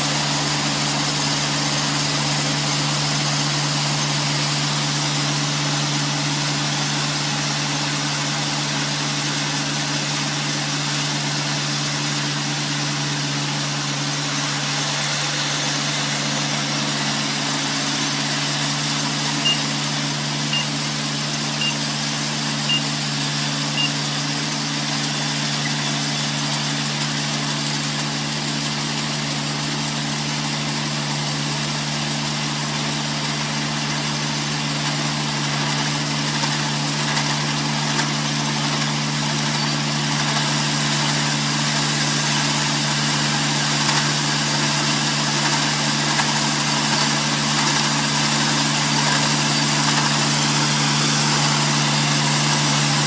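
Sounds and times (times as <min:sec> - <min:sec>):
machine engine running steadily: 0:00.0 - 0:53.0
short high beeps: 0:19.4 - 0:19.7, 0:20.5 - 0:20.8, 0:21.6 - 0:21.8, 0:22.7 - 0:22.9, 0:23.8 - 0:24.0.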